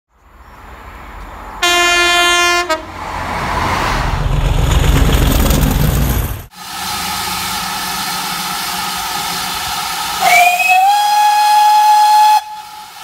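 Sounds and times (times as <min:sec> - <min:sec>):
locomotive passing with rumble: 0:00.6 - 0:10.8
train horn: 0:01.6 - 0:03.0, 0:10.2 - 0:13.0.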